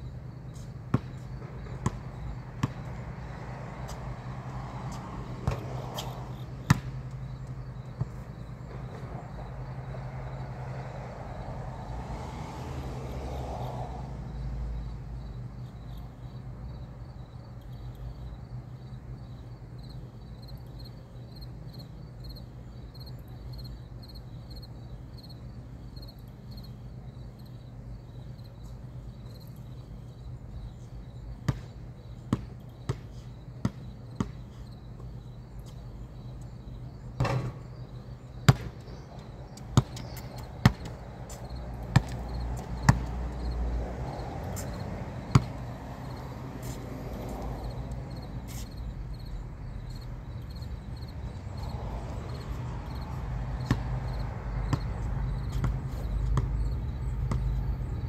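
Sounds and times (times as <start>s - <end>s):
basketball bouncing on concrete: 0.9s - 3.0s, 3.9s - 9.0s, 31.5s - 35.1s, 37.2s - 37.6s, 38.5s - 43.5s, 44.1s - 46.8s, 53.0s - 57.8s
insect chirping: 13.4s - 58.0s.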